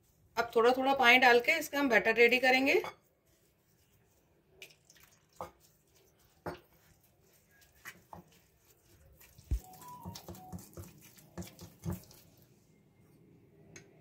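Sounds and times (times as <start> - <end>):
wet batter squishing: 3.1 - 12.6
spoon clinking and scraping bowl: 5.4 - 12.4.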